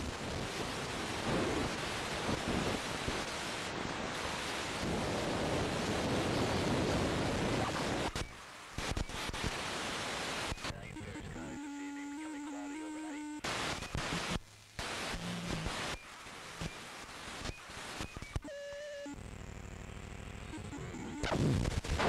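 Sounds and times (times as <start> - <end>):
wind on microphone: 0.0 - 8.2.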